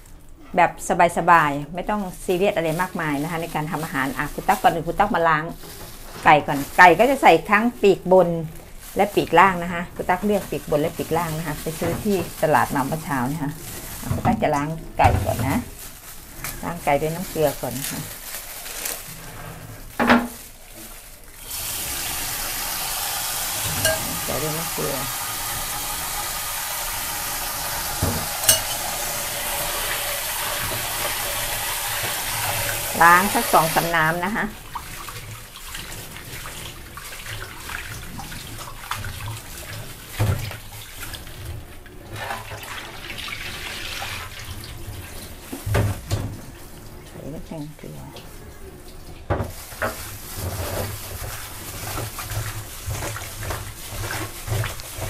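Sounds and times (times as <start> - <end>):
chicken being washed in water: 1.2 - 55.0
sharp clink: 28.4 - 28.8.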